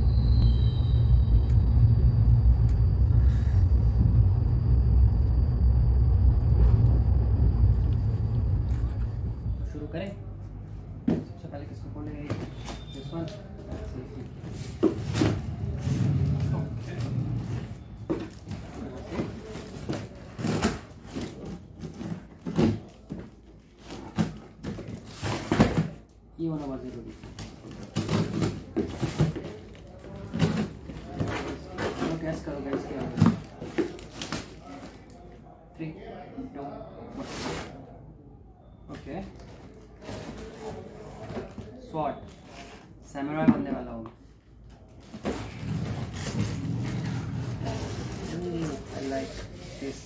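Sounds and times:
faint thin high tone: 0.0s - 9.8s
deep rumble: 0.0s - 11.0s, 14.2s - 18.8s, 45.3s - 49.0s.

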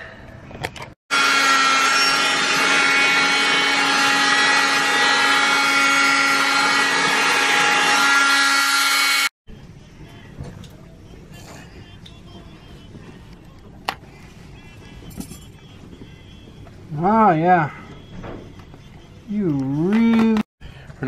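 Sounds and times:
cast saw motor whine: 1.1s - 9.3s.

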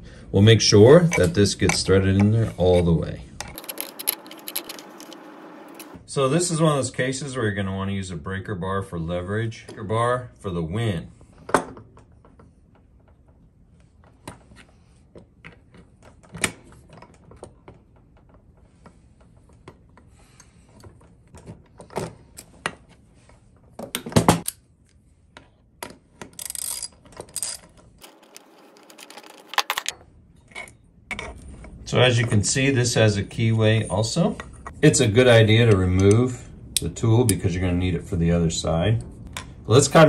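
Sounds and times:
metal clicks and clinks of wrenches: 3.4s - 6.0s, 26.3s - 31.3s.

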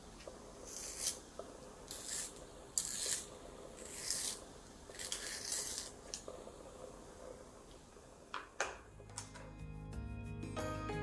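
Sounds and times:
pencil sharpener shaving wood: 0.6s - 1.2s, 1.9s - 6.0s.

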